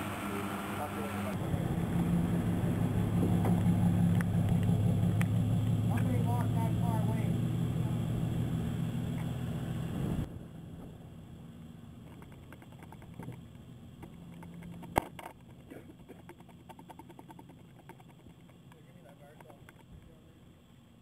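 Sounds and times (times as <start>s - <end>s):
engine hum: 0.0s - 21.0s
wheels ticking on asphalt: 3.1s - 6.7s.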